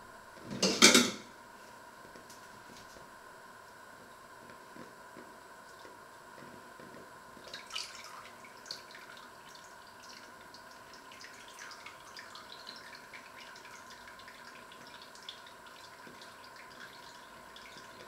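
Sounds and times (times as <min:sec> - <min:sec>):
broth dripping into pot: 0:06.9 - 0:18.0.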